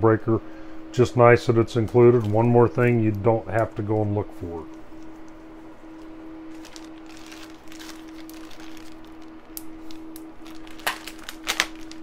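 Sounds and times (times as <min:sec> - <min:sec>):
faint steady hum: 0:00.0 - 0:12.0
plastic bag crinkling: 0:04.8 - 0:12.0.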